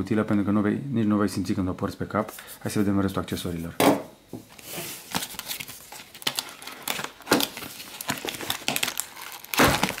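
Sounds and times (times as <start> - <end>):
plastic packaging rustling: 4.5 - 10.0.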